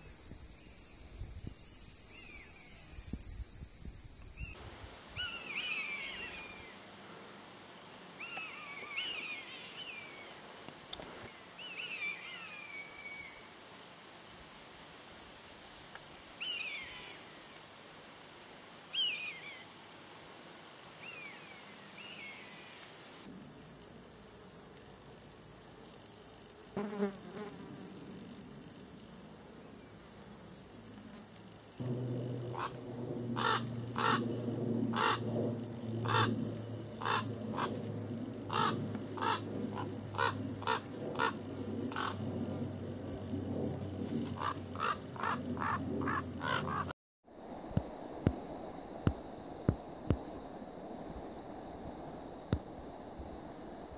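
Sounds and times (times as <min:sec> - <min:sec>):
pulsing insect trill: 0:00.0 - 0:46.9
high insect drone: 0:00.0 - 0:47.0
frogs croaking: 0:31.8 - 0:43.0, 0:43.9 - 0:46.9
buzzard mewing calls: 0:33.4 - 0:34.2, 0:37.0 - 0:37.7, 0:38.5 - 0:42.2.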